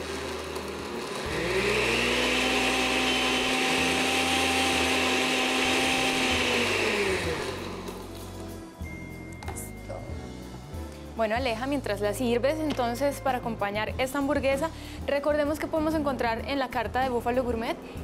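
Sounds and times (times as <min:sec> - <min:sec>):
blender motor running: 0:00.0 - 0:08.3.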